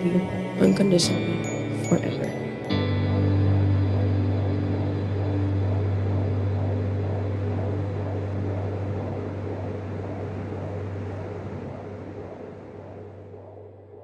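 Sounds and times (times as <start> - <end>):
deep constant hum: 0.0 - 14.0
low rumble: 0.0 - 14.0.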